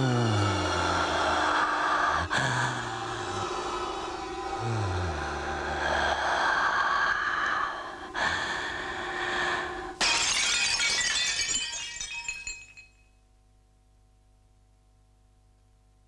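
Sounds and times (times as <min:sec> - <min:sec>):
breathy rushing hiss: 0:00.0 - 0:10.0
glass-like shatter with tinkling: 0:10.0 - 0:13.1.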